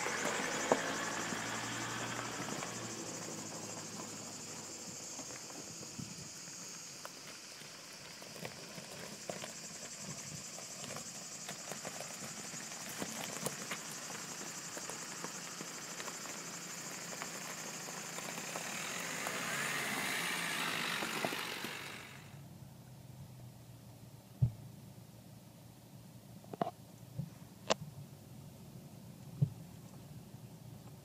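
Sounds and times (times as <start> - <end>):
high insect buzz: 0.0 - 8.6, 9.2 - 22.4
tyres crunching on gravel: 0.0 - 22.4.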